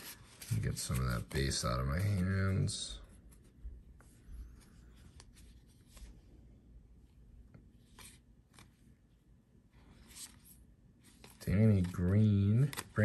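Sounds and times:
cards rustling as flipped: 0:00.0 - 0:03.6, 0:04.5 - 0:06.2, 0:07.6 - 0:08.9, 0:09.8 - 0:13.0
card edges ticking: 0:11.5 - 0:13.0.

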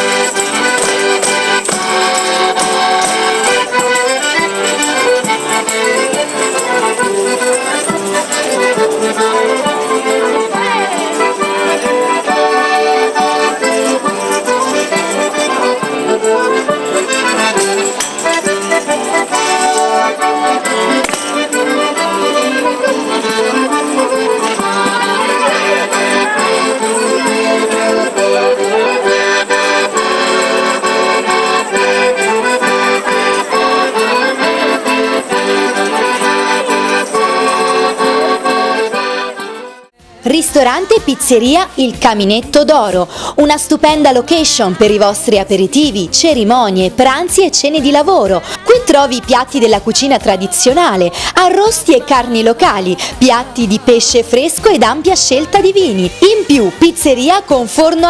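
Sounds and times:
tambourines jingling: 0:00.0 - 0:39.0
accordion playing folk dance tune: 0:00.0 - 0:58.0.

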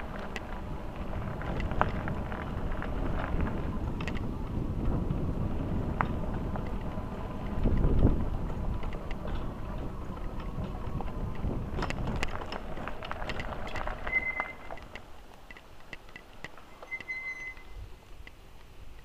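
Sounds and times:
clicks and rattles: 0:00.0 - 0:04.3, 0:06.0 - 0:18.4
wind rumbling on microphone: 0:00.0 - 0:19.0
short high squeaks: 0:14.0 - 0:14.8, 0:16.7 - 0:17.9.

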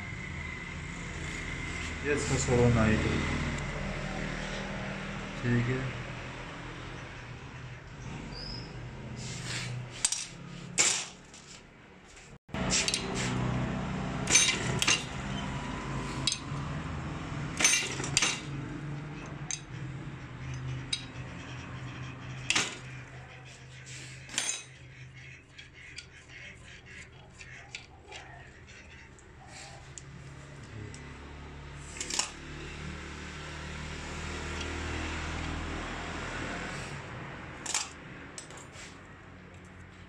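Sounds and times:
metal parts clinking in steel bowl: 0:14.3 - 0:15.2, 0:16.2 - 0:16.4, 0:17.6 - 0:18.4, 0:20.9 - 0:21.1, 0:24.3 - 0:24.8, 0:37.6 - 0:38.7.

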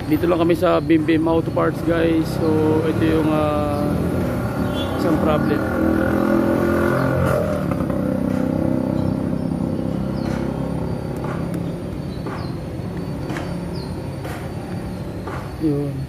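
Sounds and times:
car engine idling: 0:08.0 - 0:15.4.

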